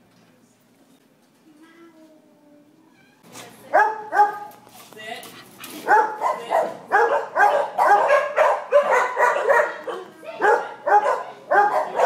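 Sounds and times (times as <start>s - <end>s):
dogs barking: 3.7s - 4.6s, 5.7s - 12.0s.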